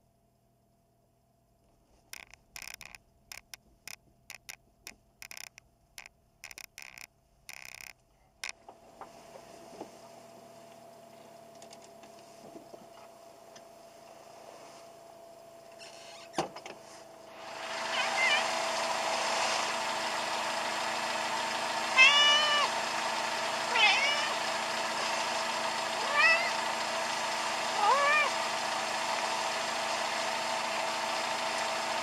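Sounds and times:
faint hum with thin whine: 0.0 - 18.4
irregular clicks and ticks: 2.1 - 8.6.

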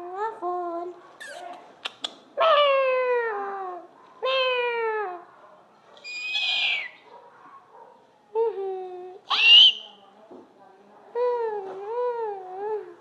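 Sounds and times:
small dog whining: 6.0 - 7.0.

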